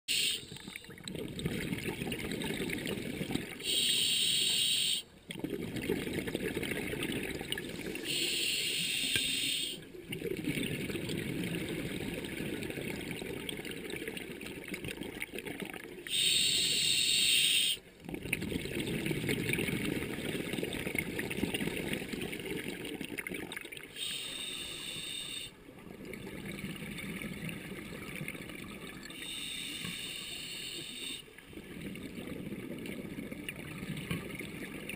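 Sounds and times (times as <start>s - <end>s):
bubbling of exhaled air: 0.2s - 8.2s, 8.8s - 34.9s
regulator hissing inhalations: 3.6s - 5.1s, 7.8s - 9.8s, 16.1s - 17.8s, 24.0s - 25.6s, 29.2s - 31.3s.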